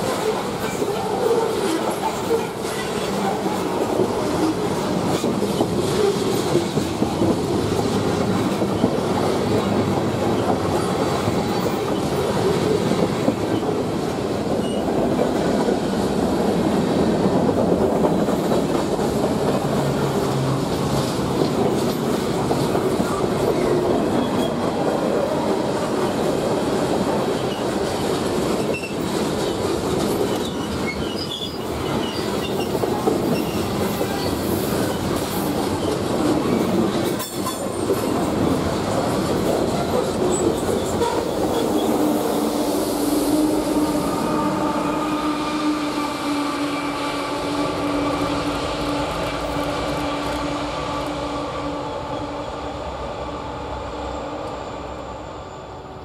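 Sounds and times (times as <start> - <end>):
freight train wheels rumbling: 0.0 - 56.0.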